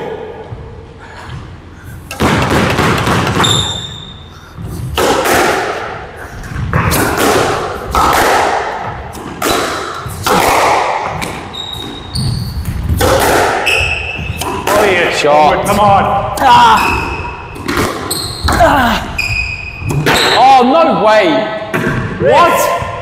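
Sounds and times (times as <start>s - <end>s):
squash ball hits echoing: 2.1s - 20.4s, 21.7s - 23.0s
shoe squeak on court: 3.4s - 4.2s, 11.5s - 12.8s, 13.6s - 14.5s, 18.0s - 18.6s.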